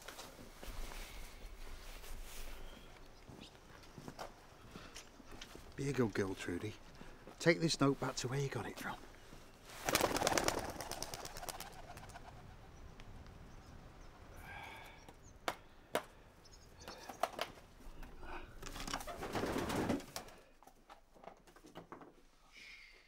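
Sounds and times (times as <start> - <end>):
pigeon wings flapping: 9.7 - 12.5, 18.6 - 20.5.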